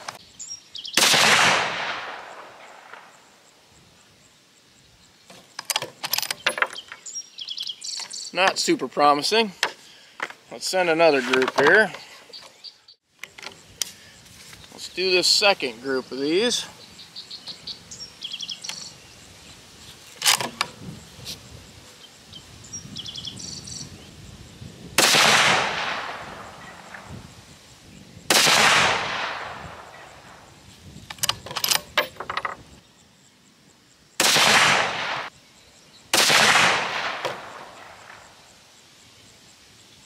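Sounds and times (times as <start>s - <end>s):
insect or bird chirping: 0.0s - 25.0s, 25.6s - 40.0s
rifle shots cracking: 1.0s - 3.1s, 25.0s - 27.1s, 28.3s - 30.4s, 34.2s - 35.3s, 36.1s - 38.2s.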